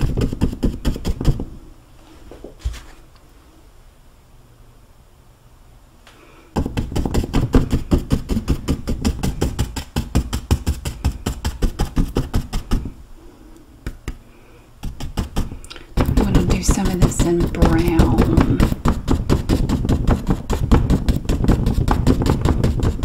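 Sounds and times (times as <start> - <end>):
paintbrush tapping on canvas: 14.8 - 23.0.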